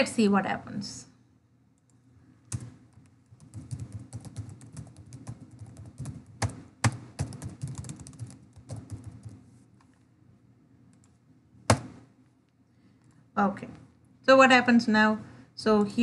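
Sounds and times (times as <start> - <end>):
computer keyboard typing: 2.5 - 9.4.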